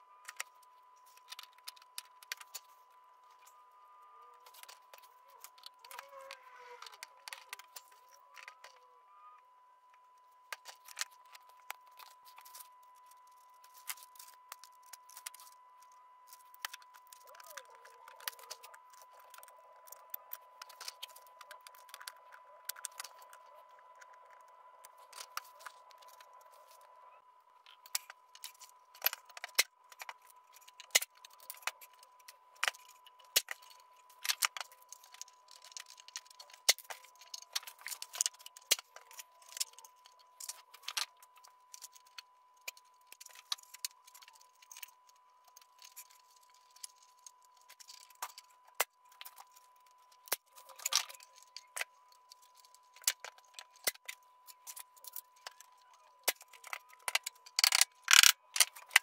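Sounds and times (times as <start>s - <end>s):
hands handling wires clicking: 27.7s - 59.0s.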